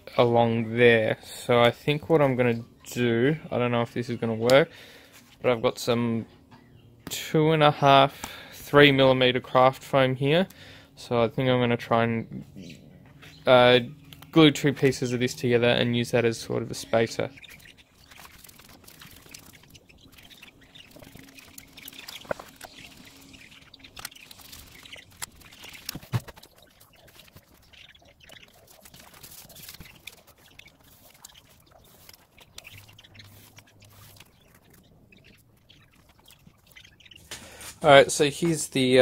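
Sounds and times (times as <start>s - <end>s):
foam sheets clicking and scraping: 20.5s - 27.6s.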